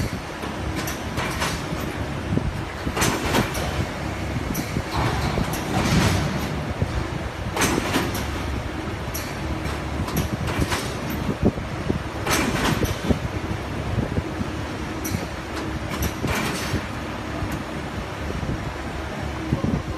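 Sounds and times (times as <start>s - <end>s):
sharp clicks and knocks: 0.0s - 2.0s, 2.8s - 8.5s, 9.1s - 11.4s, 12.2s - 13.2s, 15.0s - 17.7s
machine clattering: 0.0s - 13.5s, 14.8s - 17.8s.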